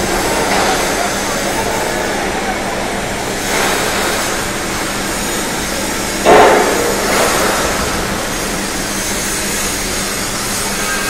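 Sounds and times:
workshop machinery noise: 0:00.0 - 0:11.0
loud metal clang: 0:06.2 - 0:09.8.

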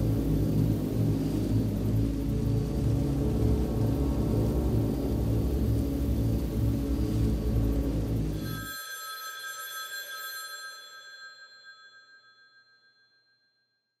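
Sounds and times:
low dark music drone: 0:00.0 - 0:08.4
telephone bell ringing: 0:08.4 - 0:13.3.

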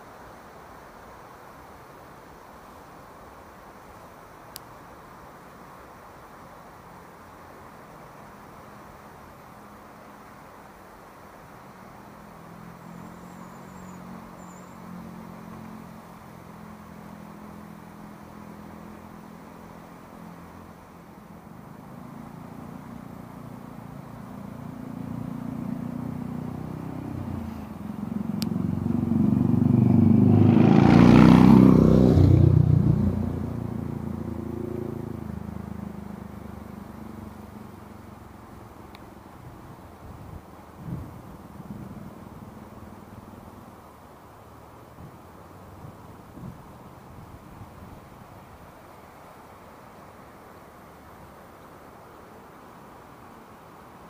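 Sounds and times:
vehicle engine passing by: 0:11.9 - 0:38.9.

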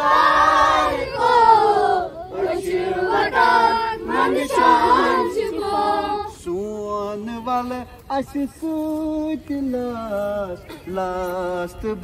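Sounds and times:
children chanting in unison: 0:00.0 - 0:06.4.

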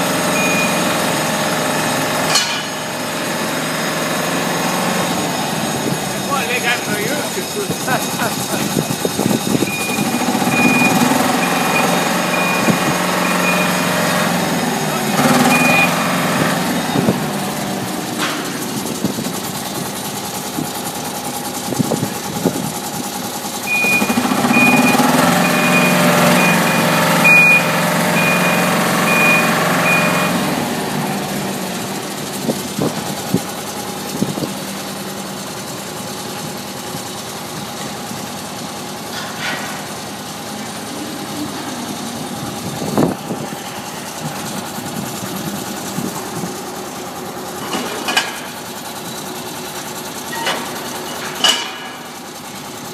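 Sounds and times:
machinery humming: 0:00.0 - 0:47.9
warning beeper: 0:00.3 - 0:01.2, 0:09.6 - 0:17.2, 0:23.7 - 0:30.7
metallic knocks: 0:02.3 - 0:02.9.

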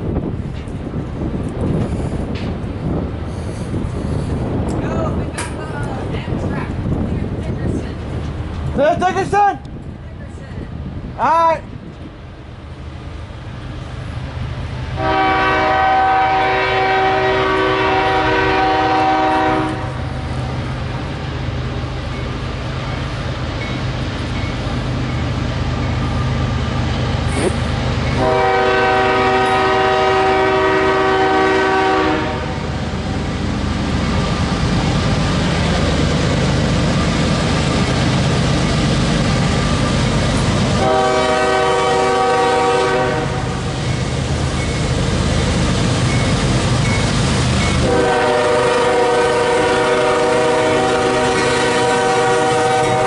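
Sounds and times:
train rumble: 0:00.0 - 0:53.0
locomotive air horn blasts: 0:15.0 - 0:20.0, 0:28.2 - 0:32.7, 0:40.8 - 0:43.6, 0:47.8 - 0:53.0.

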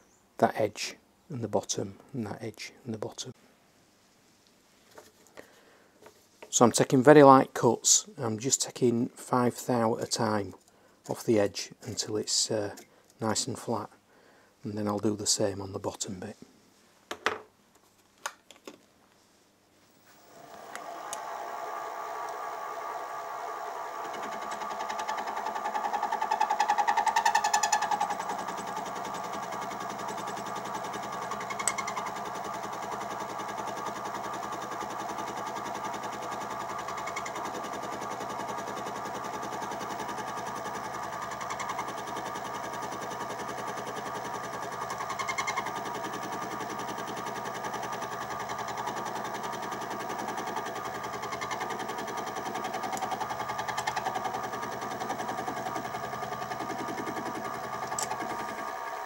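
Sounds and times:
milling machine cutting brass: 0:20.4 - 0:59.0
sharp click: 0:57.9 - 0:58.2.

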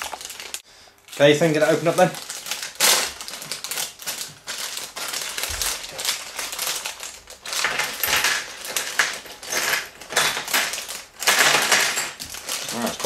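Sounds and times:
plastic bag crinkling: 0:00.0 - 0:13.0
plastic bricks clattering on table: 0:02.8 - 0:13.0.

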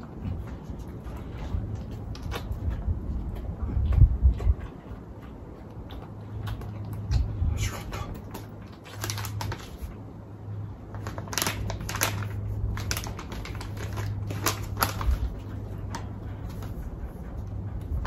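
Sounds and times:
steady low hum: 0:00.0 - 0:18.0
plastic pouch crinkling: 0:08.8 - 0:09.9, 0:10.9 - 0:15.4.

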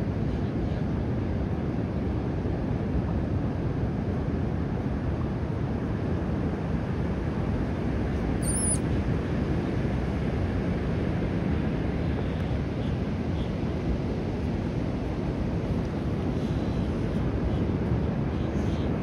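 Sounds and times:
low outdoor rumble: 0:00.0 - 0:19.0
high wavering chirp: 0:08.4 - 0:08.8.

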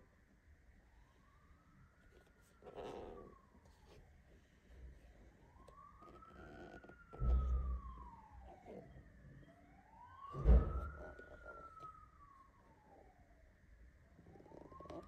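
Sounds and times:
siren wailing: 0:05.4 - 0:13.6, 0:14.2 - 0:15.0.

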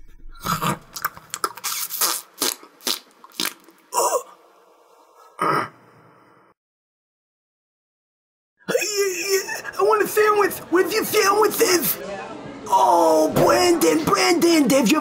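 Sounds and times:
man chewing and smacking: 0:00.4 - 0:03.9
mouth noise bursts: 0:01.5 - 0:04.3.

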